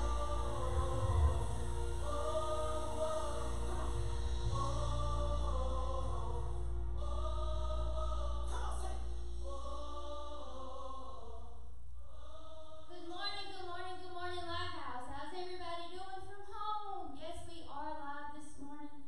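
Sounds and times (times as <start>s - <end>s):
low drone: 0.0s - 11.4s
choir singing long notes: 0.0s - 13.1s
woman speaking into a microphone: 12.9s - 18.8s.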